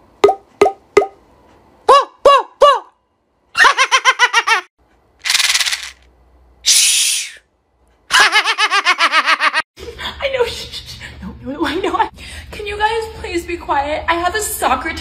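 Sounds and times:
mints rattling in case: 0:05.2 - 0:06.0.

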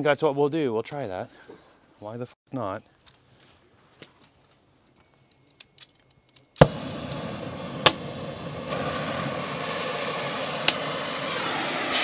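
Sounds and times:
cutting torch popping: 0:06.6 - 0:12.0
torch flame hissing: 0:06.6 - 0:12.0.

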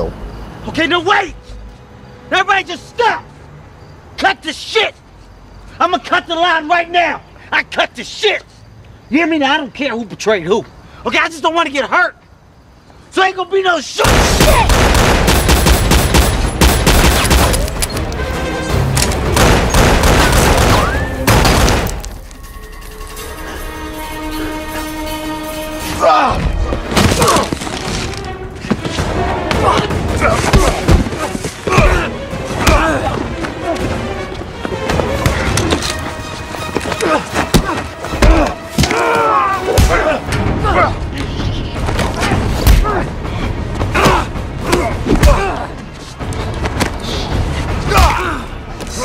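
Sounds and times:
film music score: 0:14.0 - 0:49.0
rapid gunfire: 0:14.1 - 0:17.7, 0:19.4 - 0:21.9
grunts of effort: 0:42.1 - 0:45.8.

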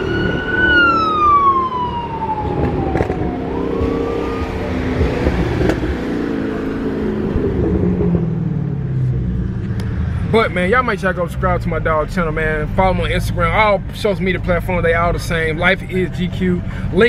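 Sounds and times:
emergency siren wailing: 0:00.0 - 0:06.8
car engines in traffic: 0:00.0 - 0:17.0.

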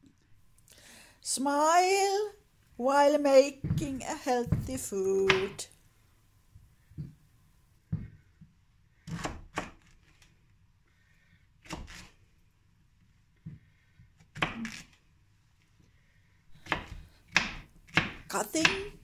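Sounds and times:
knife slicing vegetable: 0:11.6 - 0:12.2, 0:14.3 - 0:15.0, 0:16.6 - 0:19.0.

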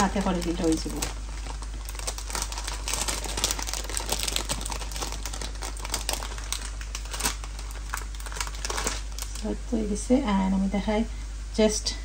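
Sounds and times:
plastic packaging crinkling: 0:00.0 - 0:09.6.

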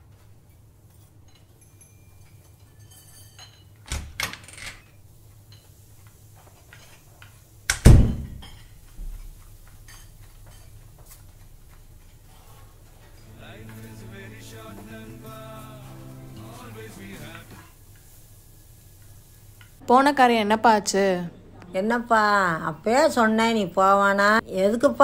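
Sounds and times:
wooden door slamming: 0:07.8 - 0:08.4.

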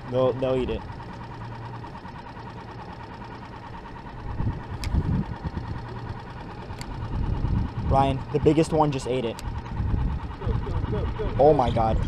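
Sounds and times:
outboard motor idling: 0:00.0 - 0:12.0
sharp clicks: 0:04.8 - 0:05.0, 0:09.3 - 0:09.6.

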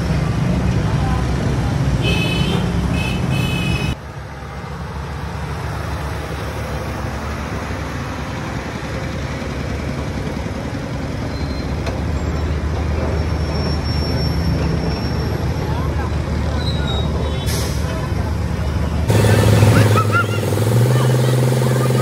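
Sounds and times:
road and traffic noise: 0:00.0 - 0:22.0
heavy truck engine running: 0:03.9 - 0:22.0.

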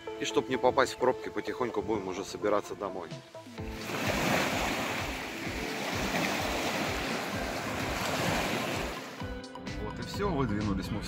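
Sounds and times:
waves washing onto shore: 0:03.3 - 0:09.3.

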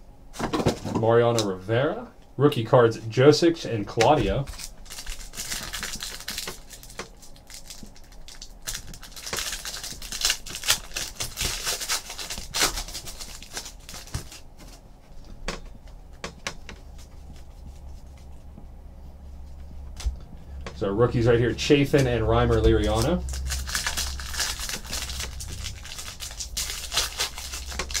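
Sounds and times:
foil wrapper tearing and crinkling: 0:04.4 - 0:14.8, 0:22.5 - 0:28.0.

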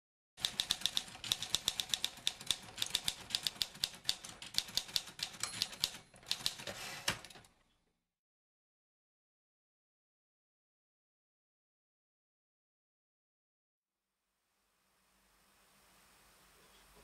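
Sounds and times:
typewriter keys clacking: 0:00.4 - 0:07.5.

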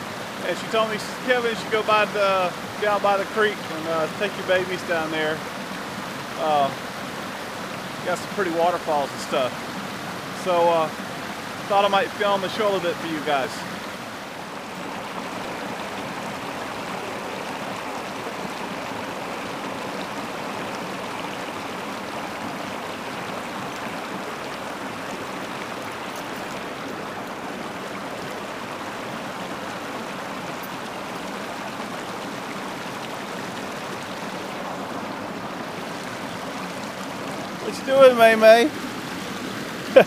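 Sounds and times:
creek water rushing over rocks: 0:00.0 - 0:40.0.

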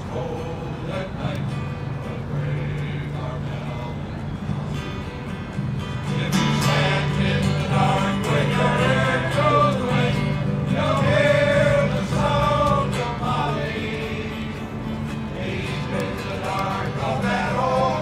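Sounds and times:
male chorus singing: 0:00.0 - 0:04.4, 0:06.0 - 0:18.0.

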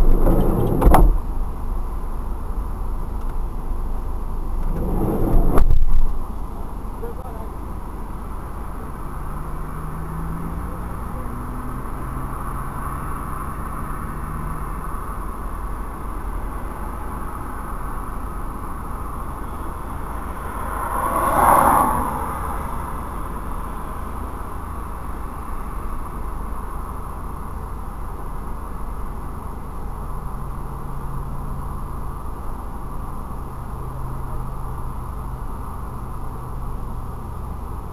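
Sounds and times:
low rumble inside car: 0:00.0 - 0:37.9
vehicle passing: 0:04.6 - 0:08.0, 0:19.9 - 0:23.8.

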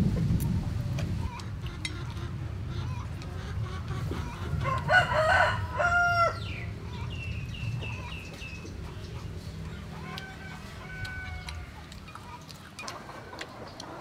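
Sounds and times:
rooster crowing: 0:04.6 - 0:06.6, 0:10.0 - 0:11.8.

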